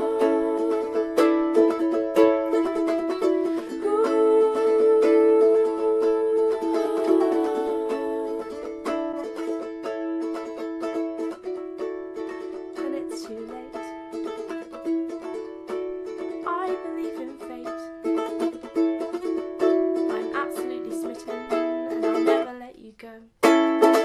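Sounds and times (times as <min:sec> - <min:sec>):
ukulele music: 0:00.0 - 0:24.0.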